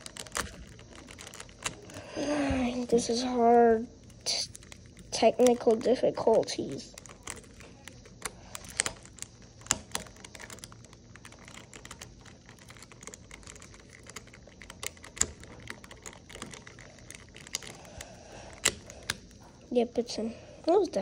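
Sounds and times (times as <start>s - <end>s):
sharp plastic snaps: 0.0s - 2.9s
plastic puzzle cube pieces clicking: 0.0s - 3.1s, 4.0s - 19.4s.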